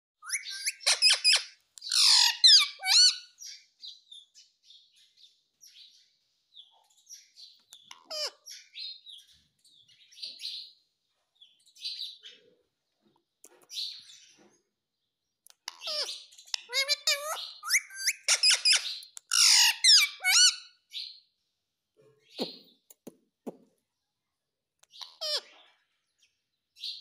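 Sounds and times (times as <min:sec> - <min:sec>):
parrot chattering: 0:00.2 - 0:03.2, 0:07.9 - 0:08.4, 0:15.7 - 0:20.6
parrot calling: 0:00.2 - 0:03.3, 0:07.9 - 0:08.6, 0:15.7 - 0:20.7, 0:24.9 - 0:25.6.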